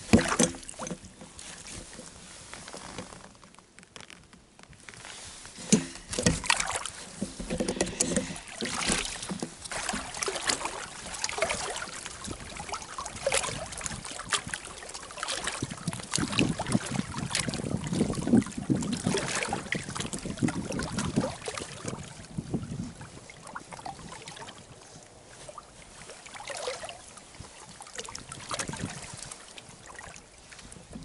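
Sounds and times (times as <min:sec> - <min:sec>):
fishing gear knocking and rustling: 0:00.0 - 0:14.7
water trickling and sloshing: 0:00.0 - 0:31.0.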